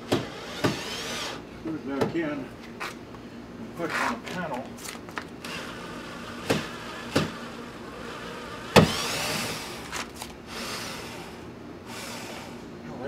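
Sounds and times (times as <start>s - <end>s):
electric screwdriver whirring: 0.3s - 1.4s, 5.4s - 11.3s.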